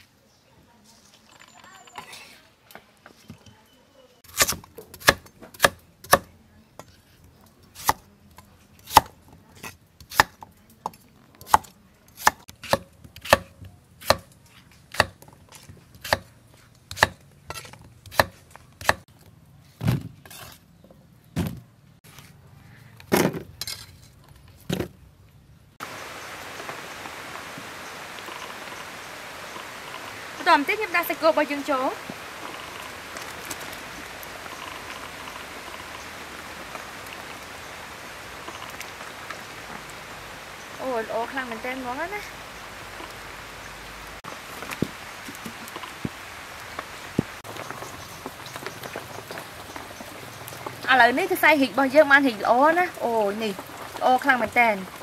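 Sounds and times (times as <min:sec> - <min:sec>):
knife chopping on wooden board: 0:11.4 - 0:14.3, 0:14.9 - 0:15.2, 0:16.0 - 0:16.3, 0:16.9 - 0:19.0.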